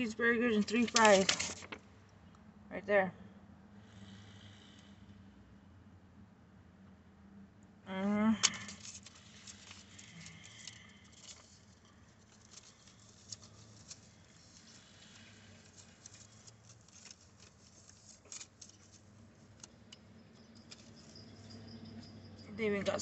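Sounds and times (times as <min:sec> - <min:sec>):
paper rustling and clicks: 0:00.4 - 0:01.8, 0:08.4 - 0:20.0, 0:20.6 - 0:21.2.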